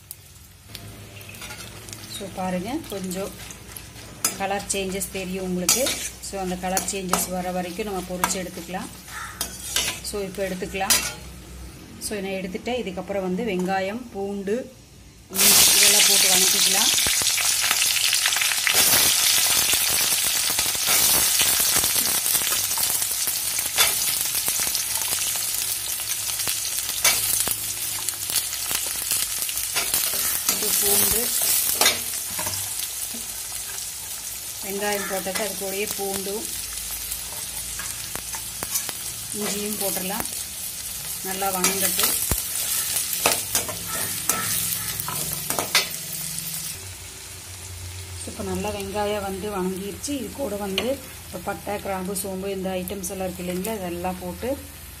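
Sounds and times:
shallots sizzling in oil: 0.0s - 55.0s
metal ladle scraping pan: 5.6s - 7.4s, 9.1s - 10.2s, 10.8s - 11.3s.

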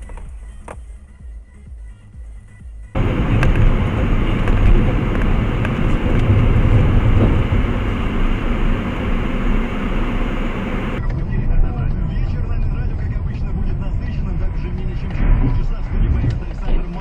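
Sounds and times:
car engine and tyre noise: 3.0s - 11.2s.

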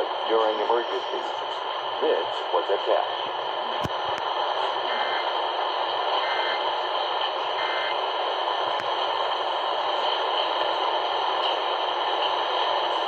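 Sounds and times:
faint data bursts: 0.0s - 8.8s
radio static hiss: 0.0s - 13.0s.

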